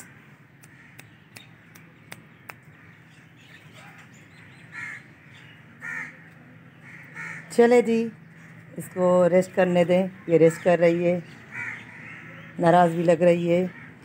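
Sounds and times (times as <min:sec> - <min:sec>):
crows cawing: 0:00.0 - 0:01.1, 0:02.6 - 0:07.6, 0:08.2 - 0:09.3, 0:10.1 - 0:12.7, 0:13.6 - 0:14.0.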